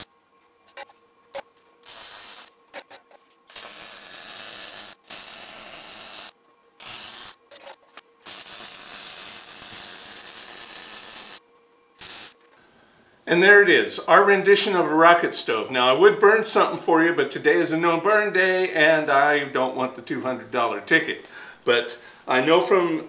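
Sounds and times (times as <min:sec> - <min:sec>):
welding arc crackling on steel: 0:01.8 - 0:11.4, 0:12.0 - 0:12.5.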